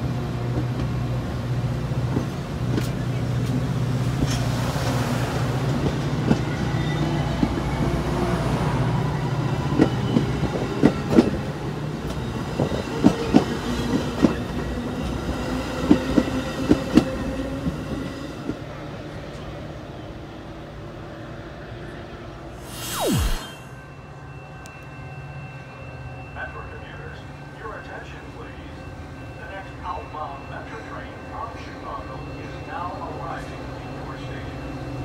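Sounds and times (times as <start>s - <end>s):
train rumbling past: 0.0s - 18.6s.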